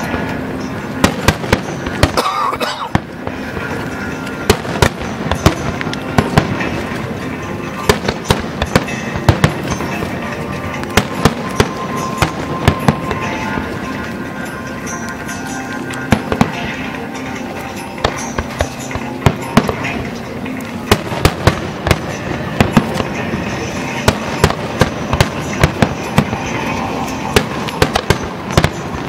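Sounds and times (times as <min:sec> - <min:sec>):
firework shells bursting: 0:00.0 - 0:20.0
background din: 0:00.0 - 0:29.0.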